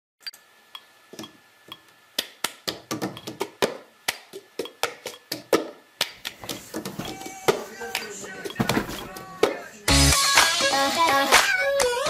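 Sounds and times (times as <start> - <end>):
sharp taps and knocks: 2.7 - 3.8.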